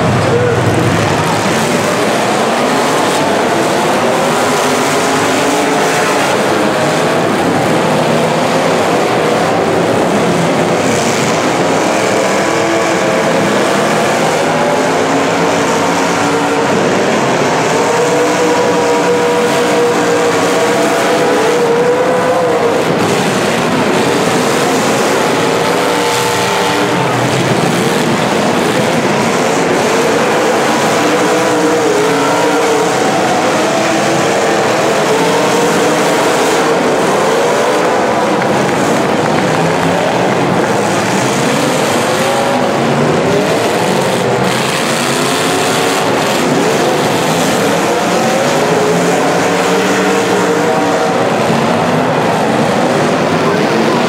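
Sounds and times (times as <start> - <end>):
car engines revving hard: 0.0 - 54.0
cars ramming: 0.0 - 54.0.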